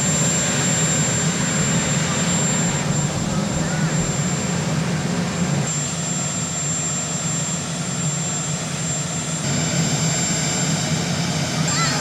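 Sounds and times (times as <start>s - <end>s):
helicopter engines droning: 0.0s - 12.0s
high constant whine: 0.0s - 12.0s.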